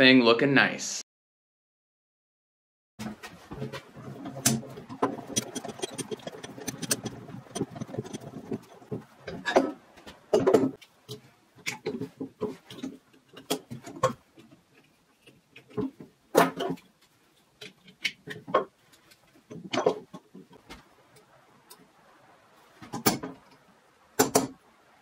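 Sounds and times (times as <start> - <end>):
metal scraping: 3.0 - 9.8
metal tools knocking on vise: 4.4 - 10.8.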